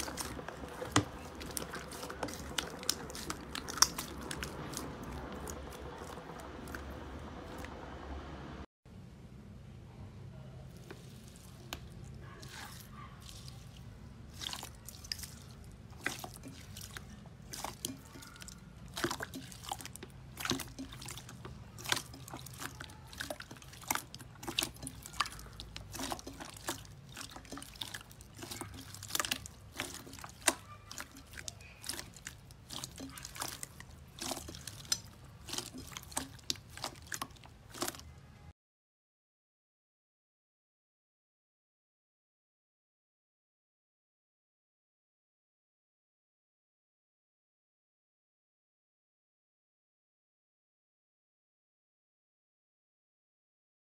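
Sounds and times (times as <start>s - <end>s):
slime squeezing wet pops: 0.0s - 6.9s, 14.3s - 38.2s.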